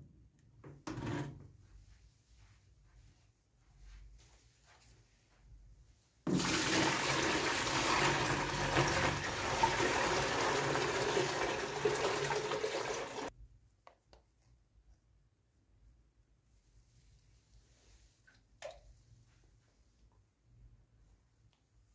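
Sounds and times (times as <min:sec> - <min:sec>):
water pouring into plastic tub: 0:06.3 - 0:13.3.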